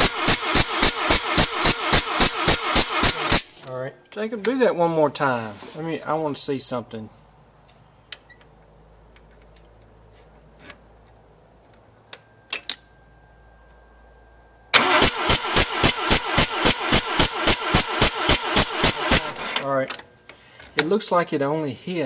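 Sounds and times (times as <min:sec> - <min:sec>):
rotary engine cranking: 0:00.0 - 0:03.5, 0:14.8 - 0:19.6
faint steady high tone: 0:03.6 - 0:06.4, 0:11.9 - 0:14.8, 0:19.6 - 0:22.0.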